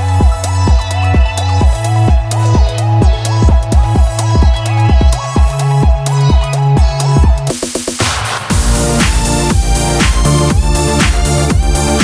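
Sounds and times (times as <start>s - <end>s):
electronic dance music: 0.0s - 12.0s
steady kick drum: 0.0s - 12.0s
held synth chords: 8.5s - 12.0s.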